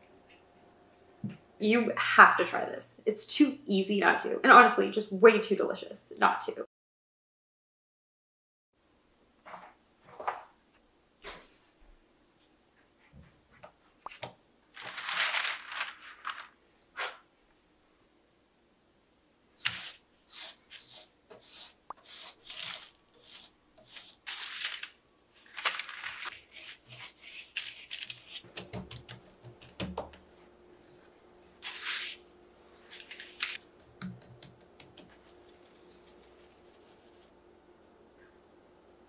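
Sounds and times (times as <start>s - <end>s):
pastry dough rustling under brush: 14.7s - 16.6s, 22.1s - 28.5s, 30.1s - 37.3s.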